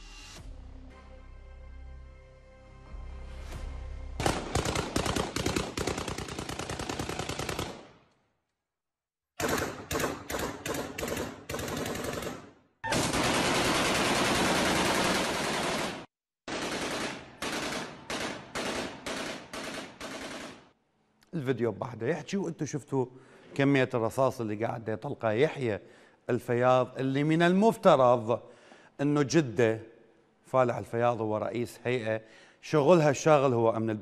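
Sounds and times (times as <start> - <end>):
rifle gunfire: 4.2 - 8.0, 9.4 - 20.7.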